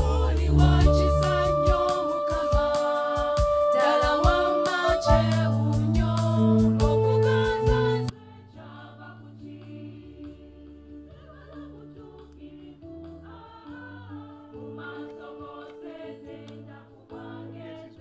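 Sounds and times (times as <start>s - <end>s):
percussive beats: 0.0s - 8.0s
women's choir singing a hymn: 0.0s - 18.0s.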